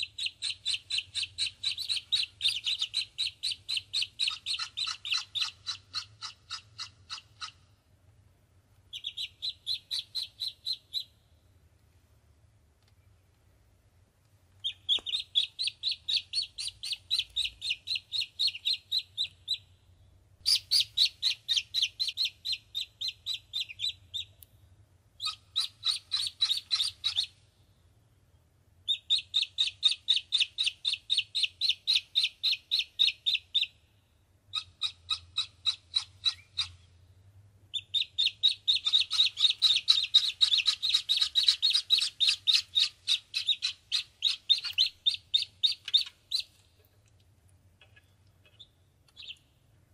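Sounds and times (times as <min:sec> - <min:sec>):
ducklings peeping: 0:00.0 - 0:07.6, 0:08.9 - 0:11.2, 0:14.6 - 0:19.7, 0:20.4 - 0:24.4, 0:25.2 - 0:27.4, 0:28.9 - 0:33.8, 0:34.5 - 0:36.8, 0:37.7 - 0:46.6, 0:47.9 - 0:49.4.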